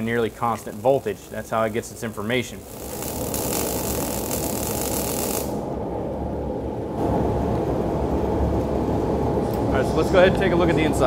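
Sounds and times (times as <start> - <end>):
welding arc crackling: 0.0 - 5.7
low mechanical rumble: 0.0 - 11.0.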